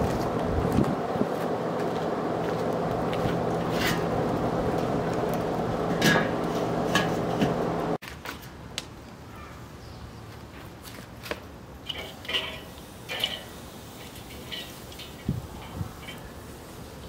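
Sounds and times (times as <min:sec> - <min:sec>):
steady hum: 0:00.0 - 0:08.0
metal clinks of grill: 0:05.9 - 0:07.6, 0:11.8 - 0:16.5.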